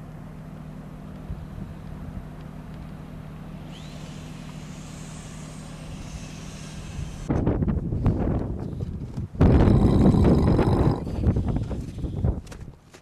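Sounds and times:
steady low hum: 0.0s - 13.0s
low rumble: 7.4s - 12.4s.

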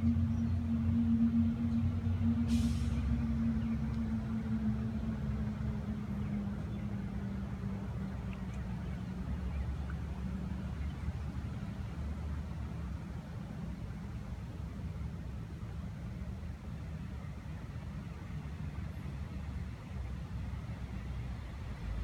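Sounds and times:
low motor hum with held tone: 0.0s - 11.9s
low rumble: 0.0s - 12.0s
brief hiss: 2.5s - 3.1s.

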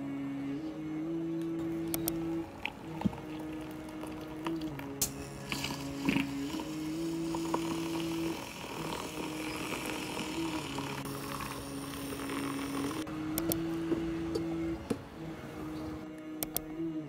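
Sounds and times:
milk frother whirring: 1.2s - 14.3s
light hiss: 1.8s - 13.7s.

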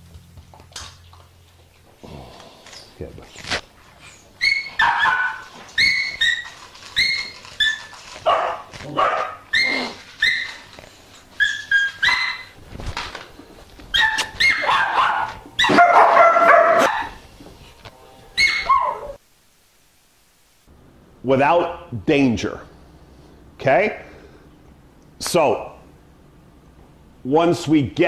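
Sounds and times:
dog yelping and whining: 4.0s - 12.6s, 13.9s - 17.2s, 18.4s - 19.2s.

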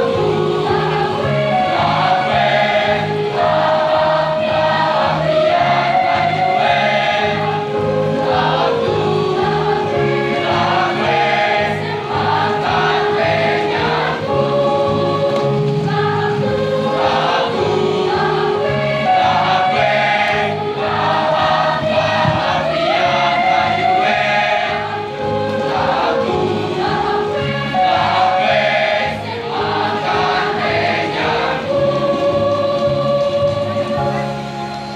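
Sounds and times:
children's choir singing: 0.0s - 34.9s
music accompaniment with low beat: 0.0s - 34.9s.

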